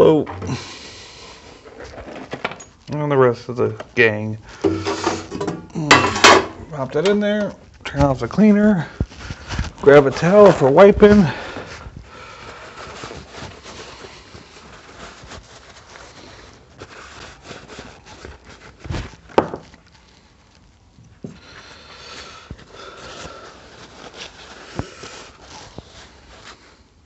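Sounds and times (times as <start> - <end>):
paper towel wiping metal parts: 3.1 - 5.5, 6.7 - 20.8, 21.4 - 27.0
metal parts knocking on wooden bench: 4.7 - 6.6.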